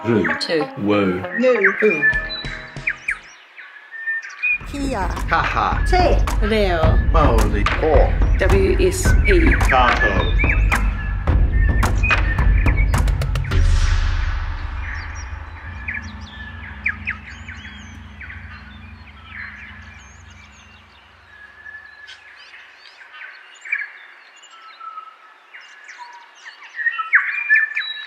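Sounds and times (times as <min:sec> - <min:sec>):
birds chirping and whistling: 0:00.0 - 0:28.0
low held tone: 0:13.2 - 0:21.9.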